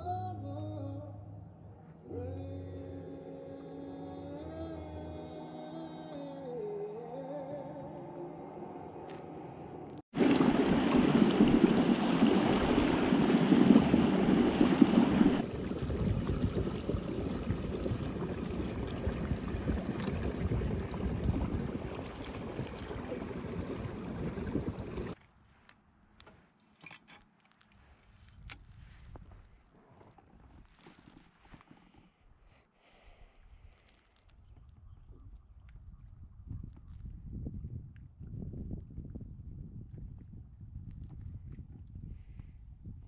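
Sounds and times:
water splashing along kayak hull: 10.1s - 25.2s.

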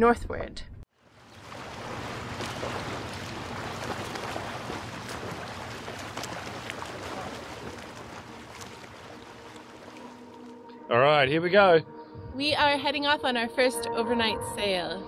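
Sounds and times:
wind and water rushing: 1.0s - 10.5s.

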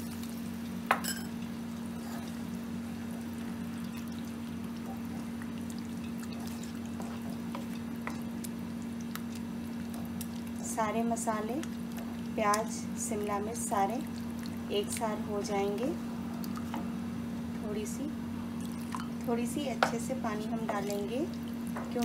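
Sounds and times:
steady low hum: 0.0s - 22.0s
wooden spatula stirring gravy: 6.1s - 8.6s.

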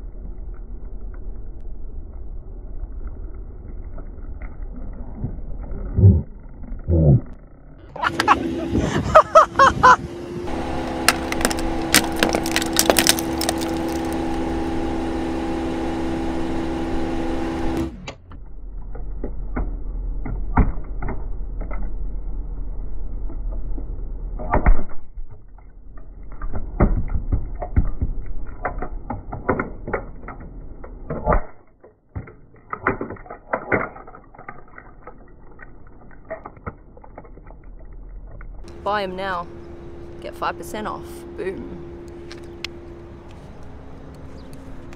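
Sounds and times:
steady multi-tone hum: 0.0s - 24.6s, 34.8s - 44.9s
plastic sunglasses cracking under tyre: 11.0s - 14.2s.

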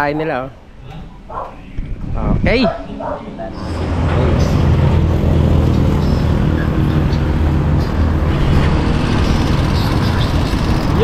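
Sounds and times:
road noise: 0.0s - 11.0s
vehicle engine running: 3.6s - 11.0s.

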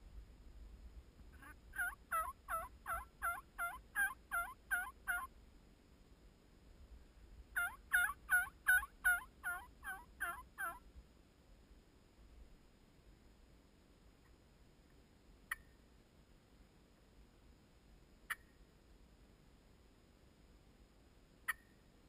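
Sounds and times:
turkey yelping: 1.4s - 5.3s, 7.6s - 10.8s.

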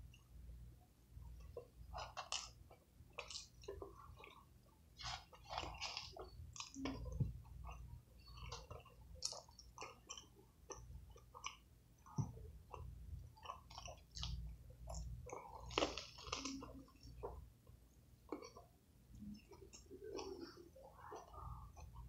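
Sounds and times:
person chewing: 1.4s - 22.0s
biting into burger: 5.0s - 7.1s, 13.4s - 16.8s.

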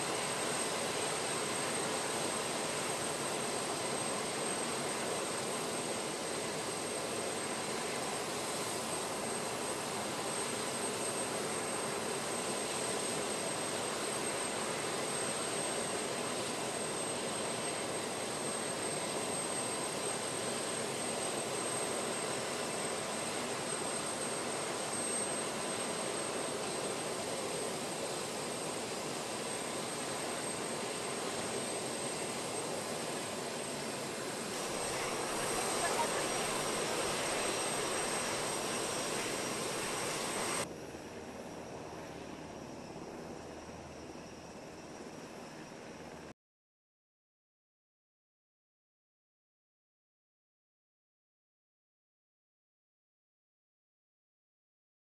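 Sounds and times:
aircraft turbine engine running: 0.0s - 46.3s.

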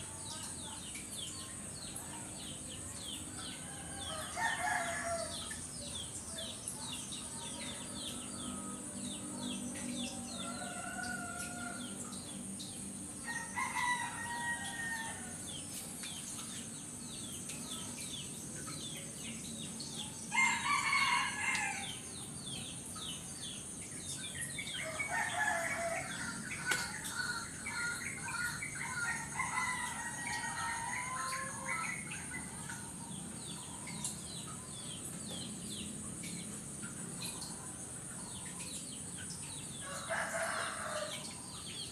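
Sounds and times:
high insect drone: 0.0s - 41.9s
small birds chirping: 0.0s - 41.9s
roosters crowing: 3.6s - 5.6s, 10.2s - 12.1s, 13.2s - 15.5s, 20.3s - 22.0s, 24.8s - 32.1s, 39.8s - 41.4s.

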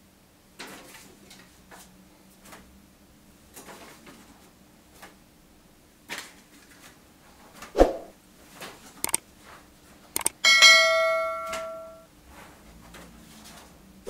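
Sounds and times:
click and bell ding: 10.2s - 12.0s.

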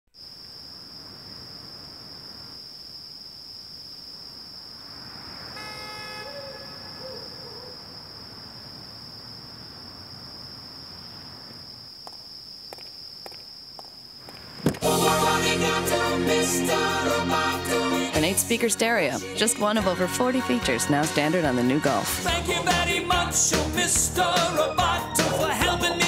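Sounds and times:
horn-like tone: 5.5s - 7.1s.

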